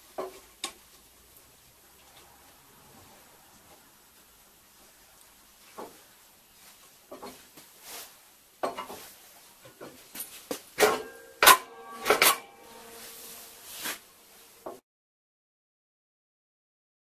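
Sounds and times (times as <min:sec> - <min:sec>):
metal parts scraping and knocking: 0:09.8 - 0:14.0
loud metallic clanks ringing: 0:10.8 - 0:14.8.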